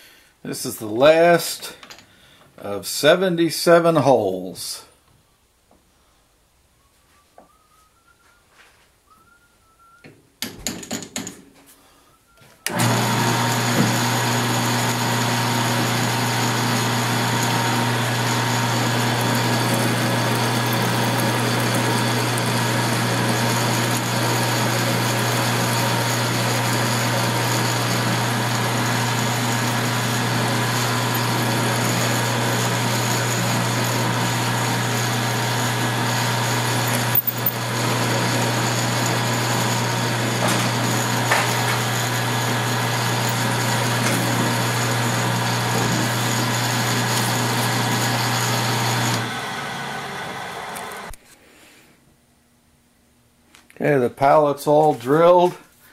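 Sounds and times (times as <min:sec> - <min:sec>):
drilling machine humming and whining: 0:12.7 - 0:51.2.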